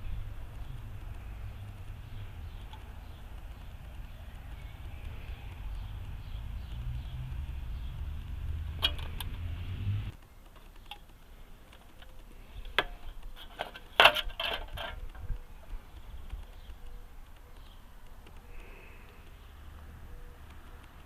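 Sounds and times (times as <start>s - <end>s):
light metallic clicks: 10.1s - 21.0s
can clattering and crinkling: 12.7s - 15.2s.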